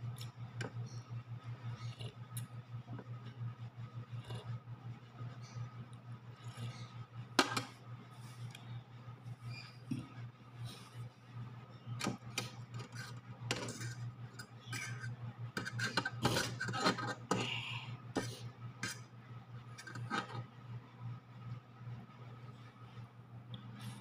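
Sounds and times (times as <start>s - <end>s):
low hum: 0.0s - 24.0s
cutlery scraping metal pot: 12.4s - 17.4s, 19.8s - 20.4s.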